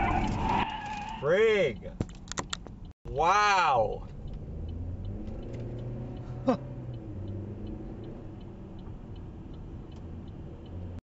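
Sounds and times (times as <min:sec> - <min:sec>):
car engine and tyre rumble: 0:00.0 - 0:11.0
light regular ticking: 0:03.9 - 0:11.0.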